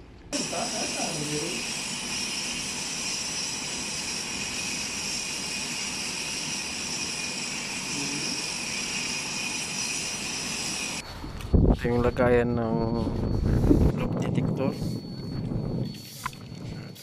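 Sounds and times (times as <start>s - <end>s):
angle grinder cutting concrete: 0.4s - 11.0s.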